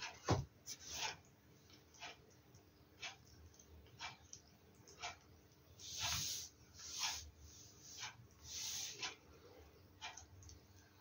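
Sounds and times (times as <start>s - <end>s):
parrot hissing and scratchy noises: 5.8s - 9.2s.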